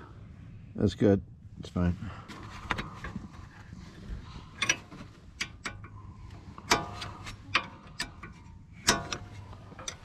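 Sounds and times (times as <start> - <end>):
wrench clinking on metal bolt: 6.7 - 10.0.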